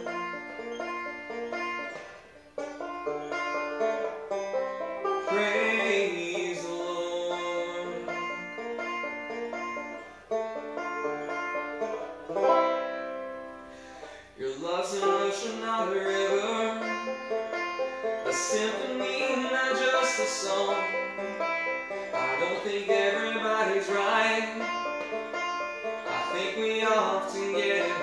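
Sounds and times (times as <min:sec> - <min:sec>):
banjo picking: 0:00.0 - 0:28.0.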